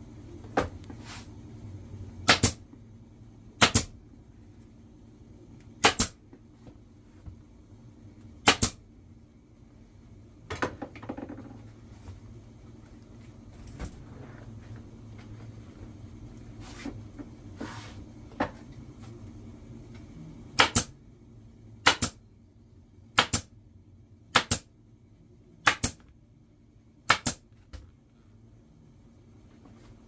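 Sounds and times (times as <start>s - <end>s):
pneumatic staple gun firing: 2.3s - 2.6s, 3.6s - 3.9s, 5.8s - 6.2s, 8.4s - 8.8s.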